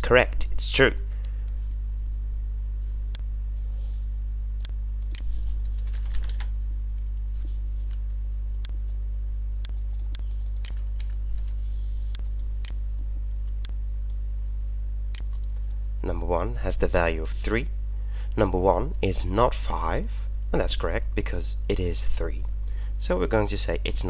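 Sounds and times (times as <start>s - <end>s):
low electrical hum: 0.0s - 24.0s
typing on a keyboard: 5.0s - 6.5s.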